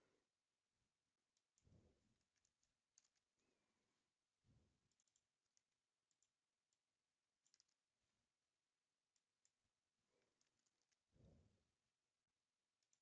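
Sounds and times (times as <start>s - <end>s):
computer keyboard typing: 4.9s - 6.4s, 7.4s - 7.8s.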